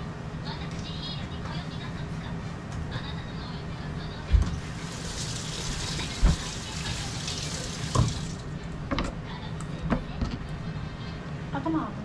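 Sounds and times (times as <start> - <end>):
tap running into steel sink: 7.9 - 8.3.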